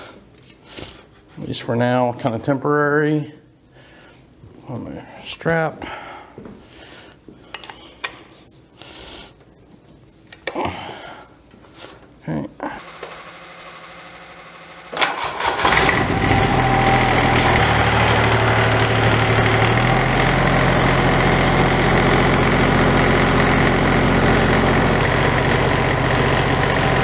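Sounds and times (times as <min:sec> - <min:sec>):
diesel engine starting and idling: 0:12.8 - 0:27.0.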